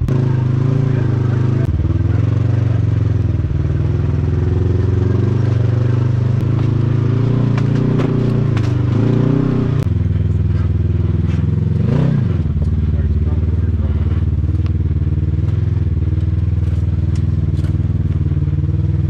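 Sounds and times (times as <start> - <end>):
utility vehicle engine running: 0.0 - 19.0
sharp clicks and clatter: 6.4 - 9.1, 9.8 - 18.2.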